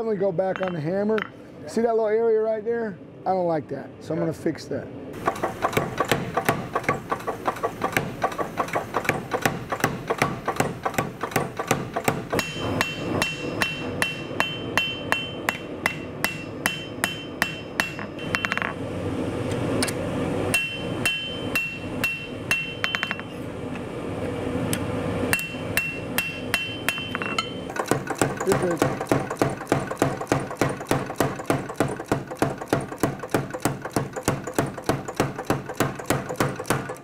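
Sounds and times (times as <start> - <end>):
power hammer pounding steel: 5.2 - 18.8, 20.5 - 23.3, 25.3 - 37.0
hand hammer ringing on anvil: 12.4 - 18.7, 20.6 - 23.3, 25.4 - 27.6.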